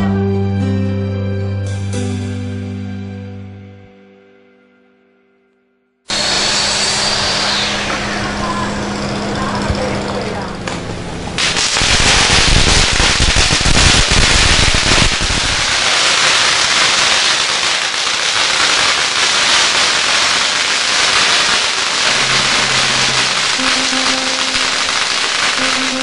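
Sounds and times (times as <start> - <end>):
firecrackers crackling: 6.1 - 26.0
firecracker bangs: 11.4 - 26.0.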